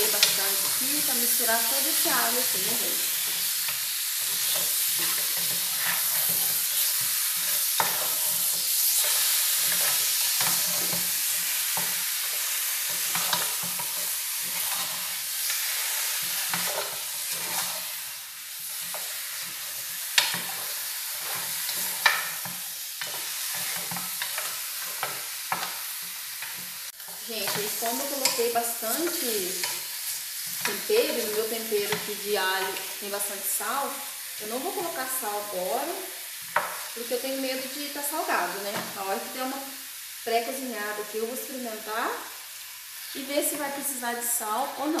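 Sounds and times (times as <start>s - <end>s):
wooden spoon stirring and scraping: 0.0s - 33.0s
chicken sizzling in pot: 0.0s - 45.0s.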